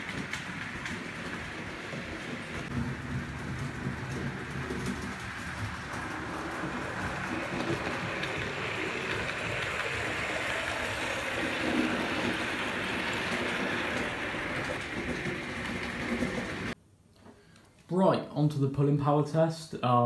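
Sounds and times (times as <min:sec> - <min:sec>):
wheels rattling on track: 0:00.0 - 0:16.8
model train motor whirring: 0:03.3 - 0:16.8.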